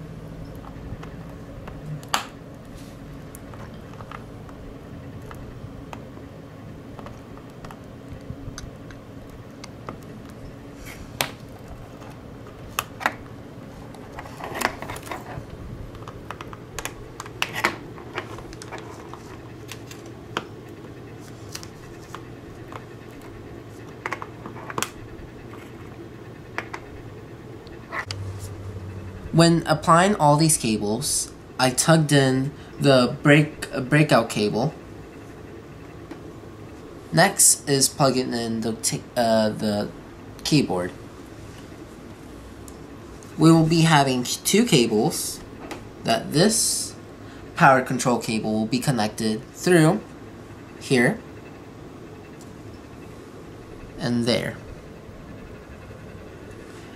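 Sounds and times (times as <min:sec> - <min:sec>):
faint steady hum: 0:00.0 - 0:56.9.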